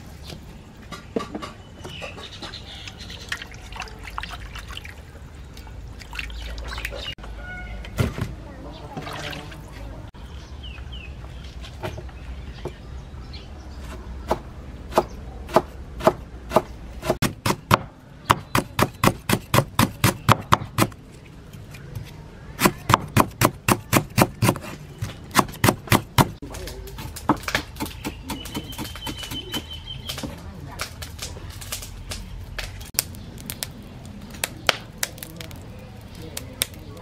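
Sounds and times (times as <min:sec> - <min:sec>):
cleaver chopping on wooden board: 0:13.8 - 0:21.0, 0:22.6 - 0:26.4.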